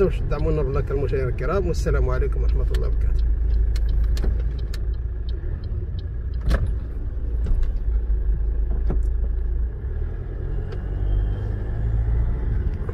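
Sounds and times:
car engine and tyre rumble: 0:00.0 - 0:12.9
sharp clicks and knocks: 0:01.4 - 0:09.4.

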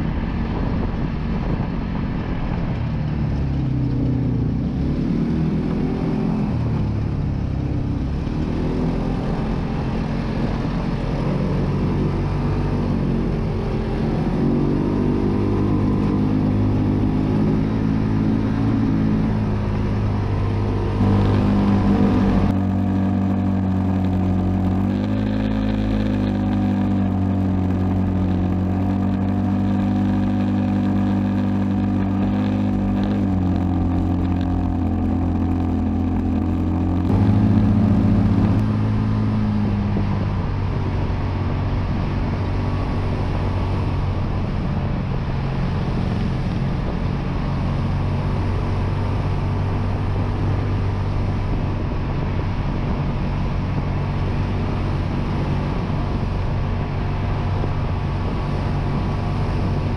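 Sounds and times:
utility vehicle engine running: 0:00.0 - 0:59.9.

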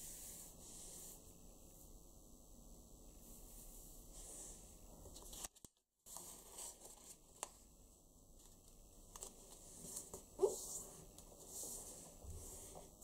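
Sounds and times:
paper rustling and crinkling: 0:05.2 - 0:07.6, 0:08.4 - 0:12.8.

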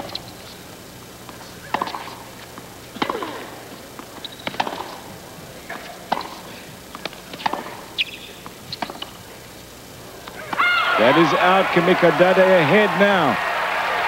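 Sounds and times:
tennis ball struck by rackets: 0:01.3 - 0:09.3, 0:10.2 - 0:10.8.

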